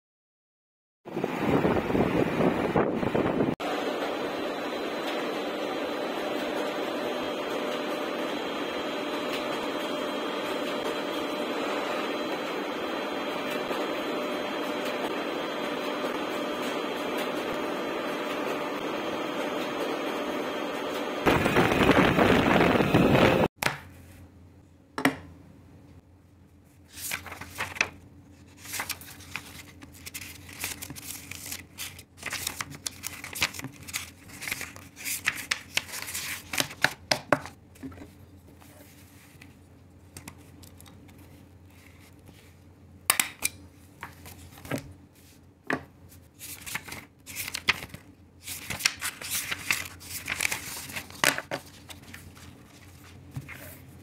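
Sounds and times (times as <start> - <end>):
loud noise burst: 21.2 - 23.5
paper rustling and flipping: 26.7 - 42.7, 43.8 - 45.4, 46.1 - 54.0.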